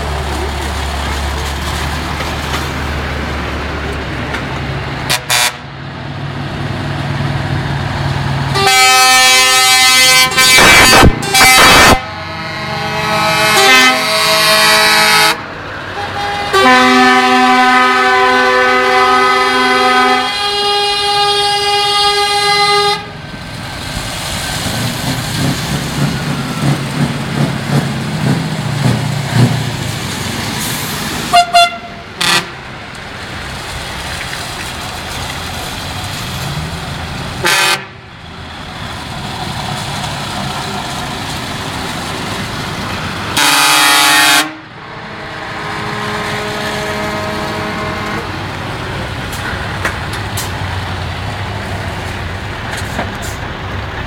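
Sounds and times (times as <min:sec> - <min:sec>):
truck diesel engines passing: 0:00.0 - 0:54.0
tyres hissing on wet road: 0:00.0 - 0:54.0
truck air horns: 0:05.0 - 0:05.7, 0:08.5 - 0:23.2, 0:31.2 - 0:32.7, 0:37.4 - 0:38.1, 0:43.4 - 0:48.4.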